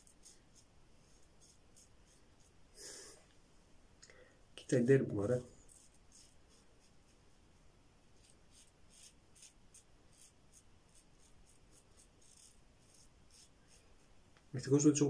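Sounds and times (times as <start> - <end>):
razor scraping stubble: 0.0 - 2.5, 4.8 - 6.9, 8.2 - 14.0.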